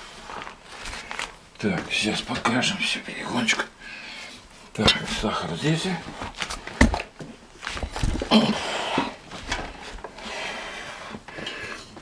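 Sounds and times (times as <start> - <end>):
soft handling noises: 0.0 - 8.3.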